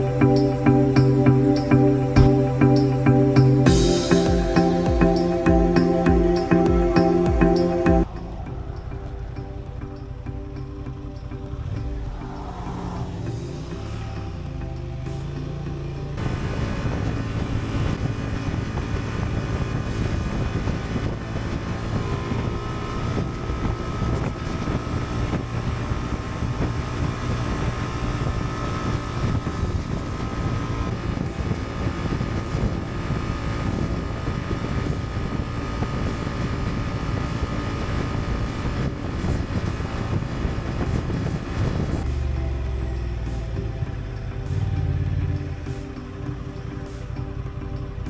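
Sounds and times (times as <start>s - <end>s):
steady high whine: 0.0s - 19.1s
motorcycle engine running: 0.0s - 48.0s
road noise: 0.0s - 48.0s
wind rushing over microphone: 16.2s - 42.7s.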